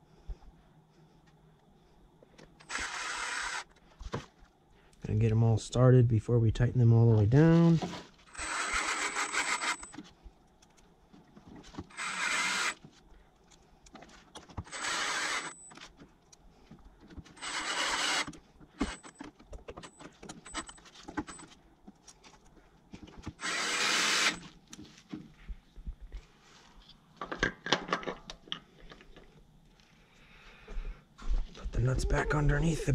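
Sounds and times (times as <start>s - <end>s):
cordless drill driving screws: 2.6s - 3.7s, 8.3s - 10.0s, 11.9s - 12.8s, 14.6s - 15.7s, 17.4s - 19.2s, 23.4s - 24.5s.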